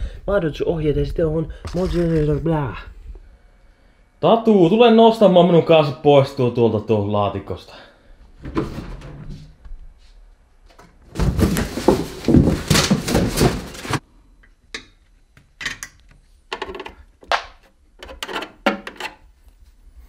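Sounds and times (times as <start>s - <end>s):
rustling and bumping: 10.7s - 14.0s.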